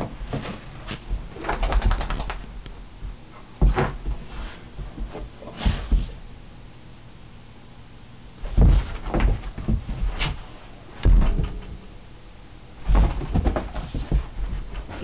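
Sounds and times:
dog thumping on carpeted floor: 3.0 - 6.2, 8.4 - 11.7, 12.8 - 15.0.

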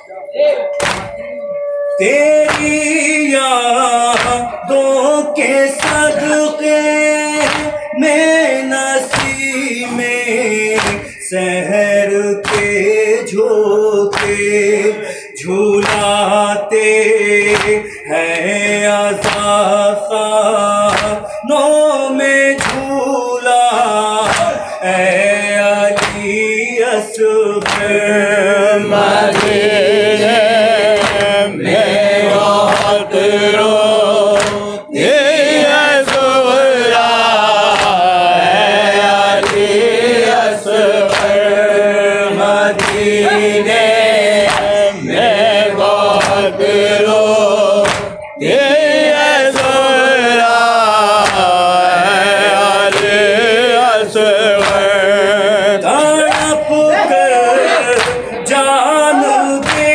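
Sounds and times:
chest-beating strikes: 0.0 - 3.2, 42.8 - 50.0
voices chanting: 0.0 - 59.9
man singing a lament into a microphone: 1.8 - 59.9.

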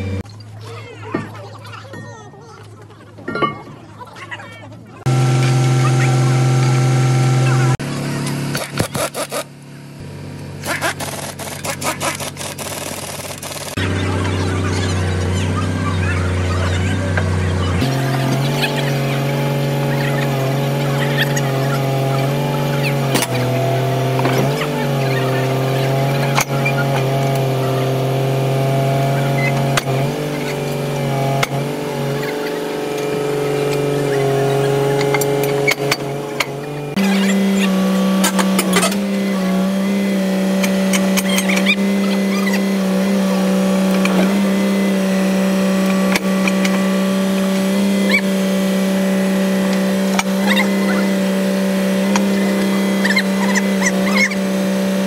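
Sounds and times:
excavator diesel engine running: 0.0 - 0.3, 5.0 - 55.0
sharp clicks: 10.8 - 13.8
short high squeaks: 41.0 - 42.7, 52.6 - 54.5.

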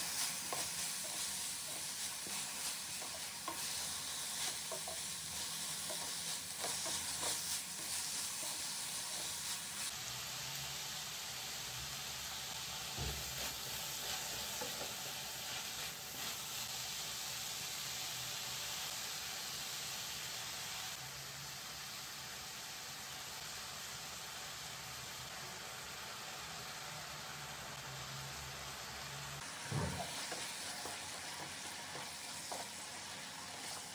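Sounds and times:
wooden spatula tapping a pan: 0.0 - 8.6, 29.7 - 33.8
vegetables sizzling in a pan: 0.0 - 33.9.

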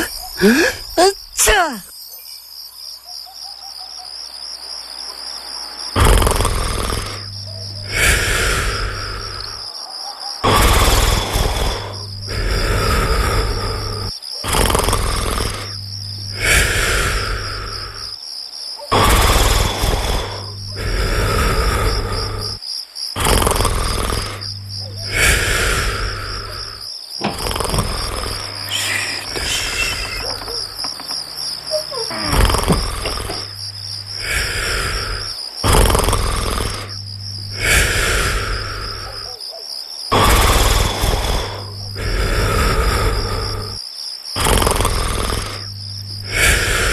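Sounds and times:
person snoring: 0.0 - 1.7, 5.9 - 9.7, 10.4 - 18.2, 18.9 - 22.6, 23.2 - 39.4, 40.1 - 43.8, 44.4 - 46.9
crickets chirping: 0.0 - 46.9
low hum: 23.7 - 35.4.

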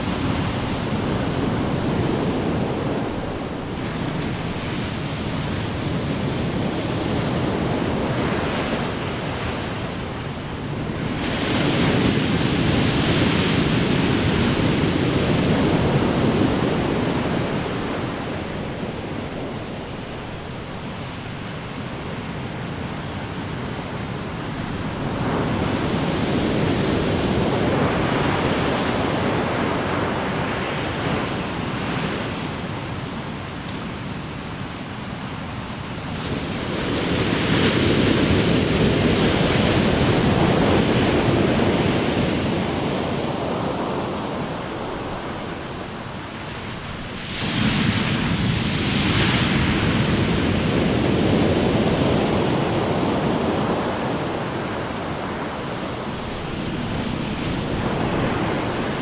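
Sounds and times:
ocean waves breaking: 0.0 - 59.0
big wave crashing: 36.1 - 59.0.

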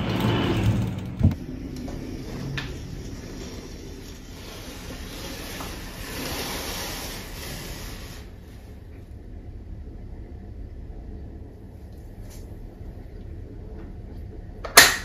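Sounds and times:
curtain swishing along track: 0.0 - 8.9
room noise: 0.0 - 15.0.

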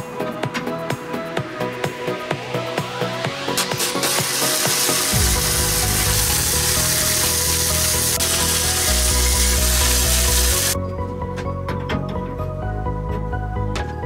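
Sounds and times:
background music: 0.0 - 14.0
welder arc crackling: 3.5 - 10.8.

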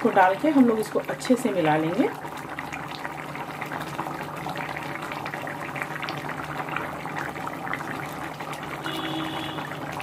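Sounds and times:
curry bubbling in a pan: 0.0 - 10.0.

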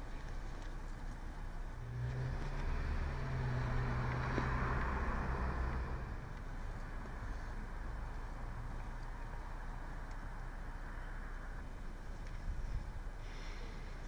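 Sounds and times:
car driving past: 1.8 - 8.7.

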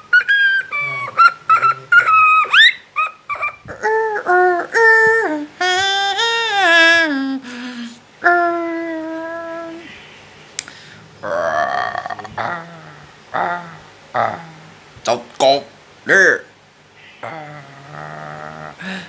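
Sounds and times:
high-pitched vocal chirps: 0.0 - 10.0
person singing drawn-out notes: 3.7 - 9.9.

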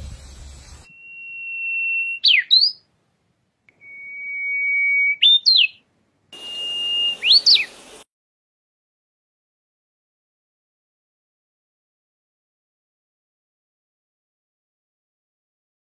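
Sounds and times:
bush warbler singing: 0.0 - 2.9, 3.7 - 5.8, 6.4 - 8.0.

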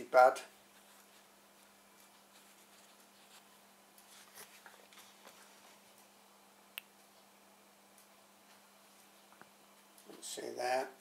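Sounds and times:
faint steady hum: 0.0 - 11.0
soft scratchy rustles: 0.6 - 6.0.

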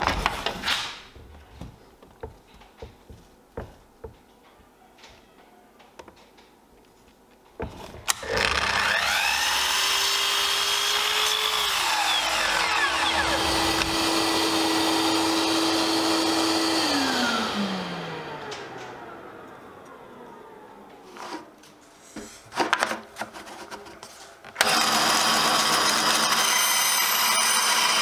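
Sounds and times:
saw blade cutting wood: 8.1 - 17.4
mitre saw motor whining: 8.1 - 20.7, 24.6 - 28.0.

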